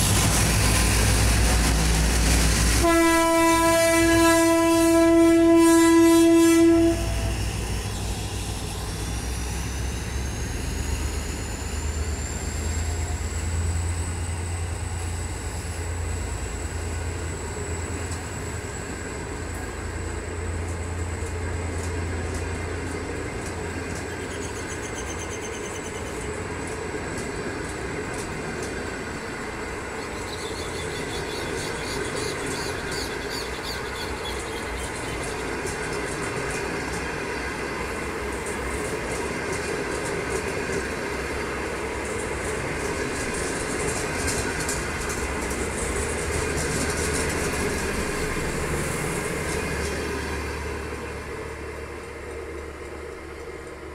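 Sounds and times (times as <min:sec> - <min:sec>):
train wheels clicking over rails: 0:00.0 - 0:05.2, 0:17.2 - 0:53.9
locomotive horn: 0:02.7 - 0:07.5
diesel engine low rumble: 0:06.3 - 0:53.9
thin high whine: 0:06.7 - 0:21.9.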